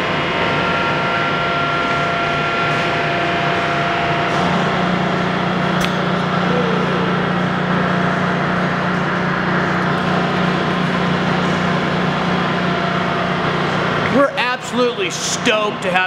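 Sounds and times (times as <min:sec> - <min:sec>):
lathe mechanical hum: 0:00.0 - 0:16.0
sharp click: 0:05.8 - 0:06.0.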